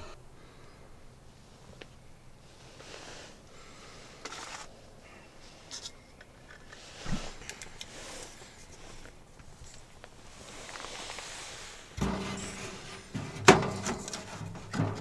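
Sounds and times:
rustling and scraping: 0:01.4 - 0:04.8, 0:05.4 - 0:15.0
dull thump: 0:12.0 - 0:15.0.

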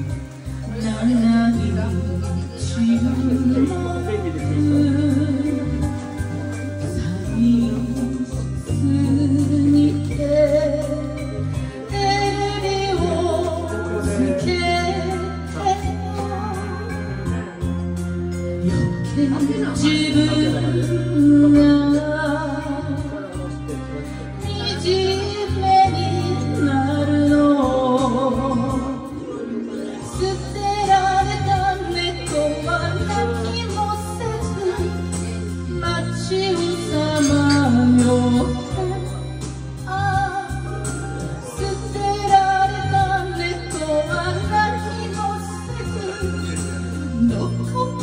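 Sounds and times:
karaoke backing track: 0:00.0 - 0:48.0
woman singing into a microphone: 0:00.0 - 0:48.0.

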